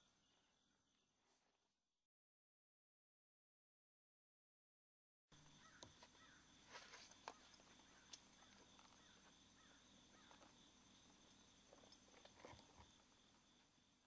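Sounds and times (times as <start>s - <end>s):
high insect drone: 0.0s - 1.5s, 5.4s - 14.0s
soft bird chirps: 5.4s - 14.0s.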